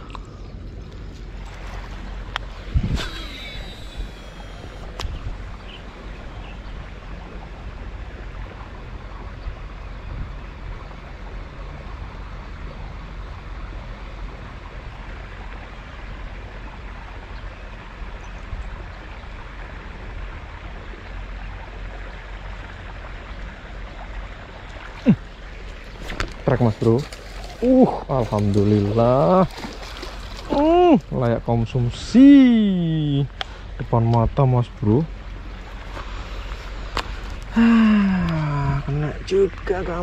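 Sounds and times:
fish splashing in water: 24.4 - 31.1.

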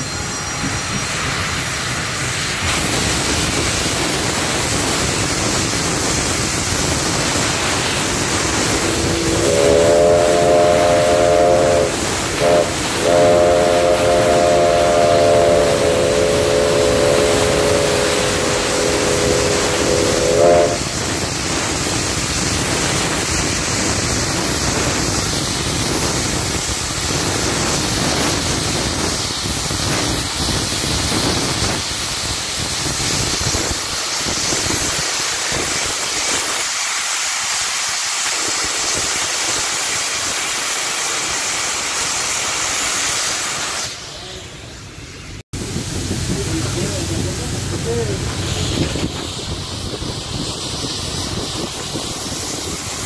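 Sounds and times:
locomotive hiss and rumble: 0.0 - 53.0
steam whistle blast: 7.1 - 21.6.

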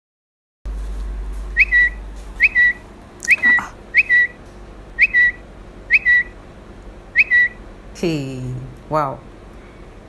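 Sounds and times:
low hum: 0.7 - 10.0
short high whistled call: 1.6 - 4.4, 5.0 - 6.3, 7.2 - 7.6.

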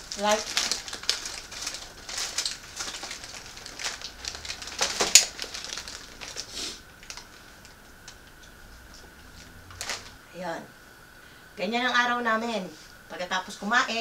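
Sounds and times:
plastic snack bags crinkling: 0.0 - 8.3, 9.2 - 10.2.

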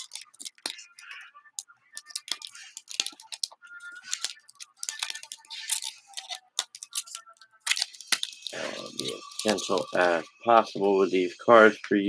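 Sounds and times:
foil packs crinkling and rustling: 0.0 - 0.9, 2.1 - 10.1.

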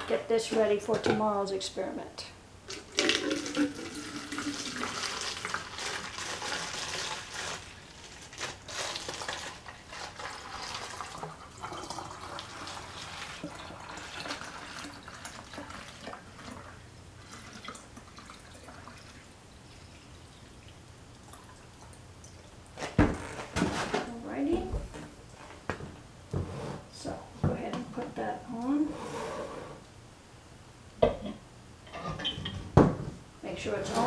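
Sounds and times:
water pouring into bottle: 2.7 - 20.0.

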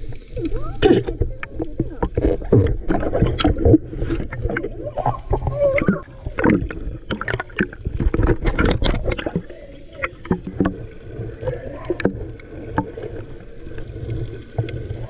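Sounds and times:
underwater rumble of moving water: 0.0 - 15.0.

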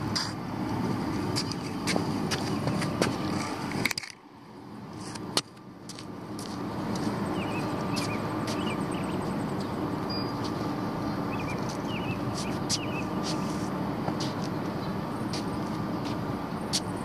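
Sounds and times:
distant traffic rumble: 0.0 - 17.0
small bird chirps: 7.3 - 13.5.

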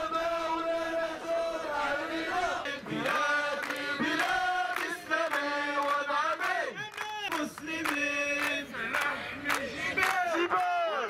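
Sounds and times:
crowd chanting in unison: 0.0 - 11.0
hand clapping: 3.0 - 10.8.

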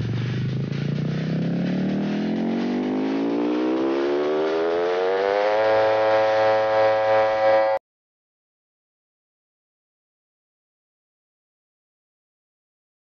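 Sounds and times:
rising electronic riser sweep: 0.6 - 7.8.

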